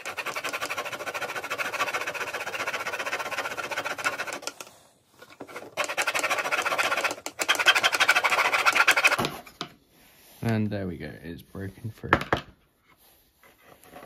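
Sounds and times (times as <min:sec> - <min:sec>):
razor saw rasping: 0:00.0 - 0:04.7, 0:05.4 - 0:09.4.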